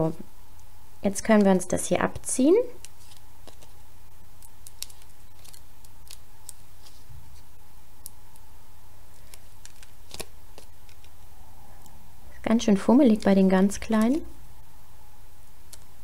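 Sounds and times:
steady low hum: 0.0s - 16.0s
peeling paper ticks and rustles: 2.8s - 3.8s, 4.4s - 7.4s, 9.1s - 11.9s, 13.0s - 14.3s.

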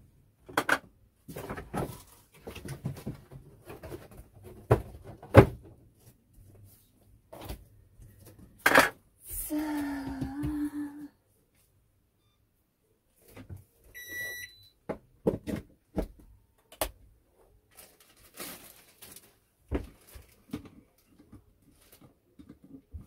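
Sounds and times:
short electronic beep: 14.0s - 14.7s.

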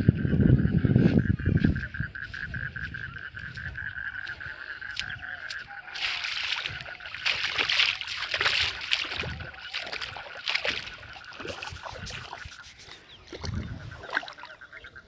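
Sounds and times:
frogs chorus: 0.0s - 15.0s
rough frog calls: 0.0s - 15.0s.

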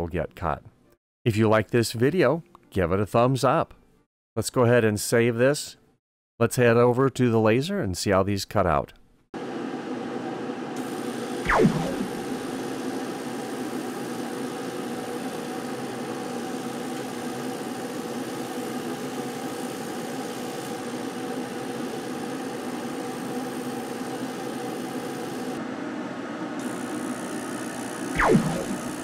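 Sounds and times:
laser cutter humming: 10.8s - 25.6s, 26.6s - 29.0s.

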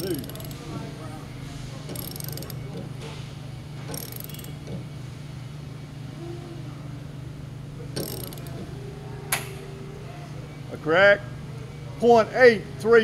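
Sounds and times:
hand ratchet wrench clicking: 0.0s - 0.6s, 1.9s - 2.6s, 3.9s - 4.6s, 8.0s - 8.6s
steady low hum: 0.0s - 12.9s.

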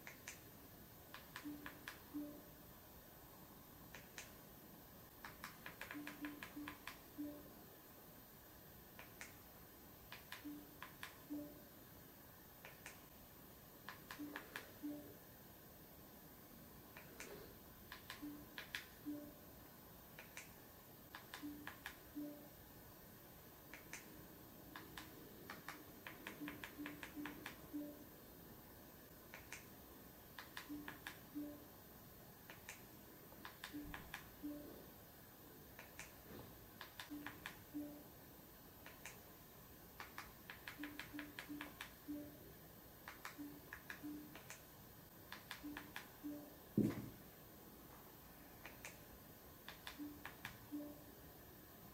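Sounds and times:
remote control buttons clicking: 0.0s - 0.5s, 1.1s - 2.5s, 3.9s - 4.4s, 5.2s - 7.5s, 9.0s - 9.4s, 10.1s - 11.6s, 12.6s - 13.1s, 13.8s - 15.1s, 16.9s - 19.4s, 20.2s - 22.5s, 23.7s - 28.0s, 29.3s - 31.6s, 32.5s - 34.7s, 35.8s - 36.2s, 36.8s - 38.0s, 38.8s - 39.3s, 40.0s - 42.4s, 43.0s - 44.7s, 45.3s - 47.1s, 48.6s - 51.1s
button clicks: 1.2s - 2.4s, 13.9s - 15.1s.

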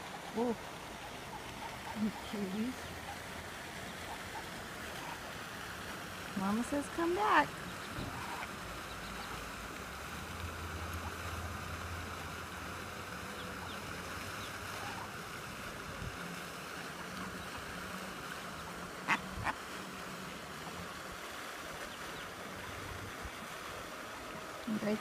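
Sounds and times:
rushing outdoor background noise: 0.0s - 25.0s
ducklings peeping: 0.2s - 5.3s, 7.3s - 9.4s, 13.2s - 15.1s, 21.8s - 22.4s.

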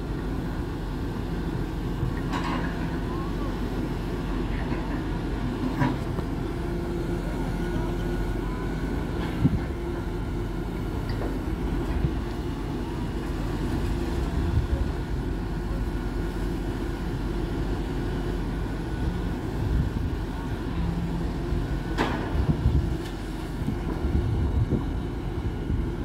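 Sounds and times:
diesel truck engine running: 0.0s - 26.0s
knocks of wood and metal: 22.0s - 22.4s.

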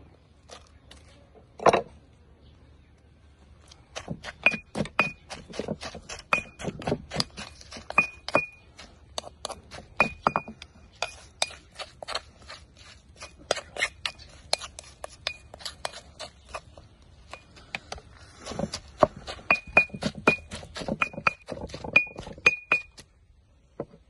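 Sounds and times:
pestle pounding in stone mortar: 3.9s - 23.0s.

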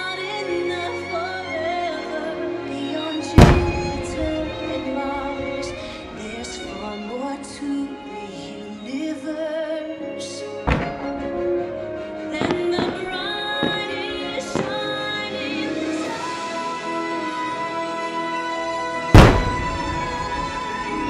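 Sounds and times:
music with singing: 0.0s - 21.0s
firework boom: 3.4s - 6.9s, 19.2s - 20.6s.

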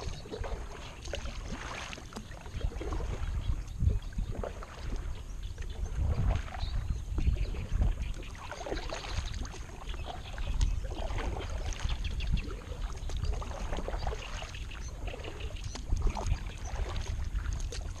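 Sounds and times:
paddle strokes in water: 0.0s - 18.0s.

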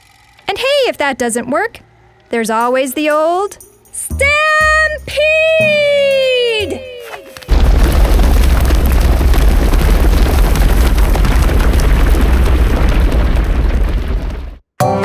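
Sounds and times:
stampede deep rumble: 7.5s - 14.6s.

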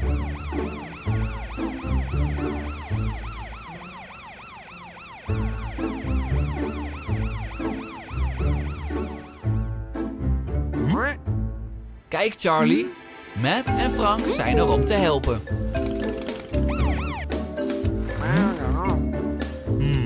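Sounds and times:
cartoon emergency sirens wailing: 0.0s - 9.7s, 13.7s - 15.4s, 16.6s - 17.5s
background music with bass beat: 16.7s - 20.0s.

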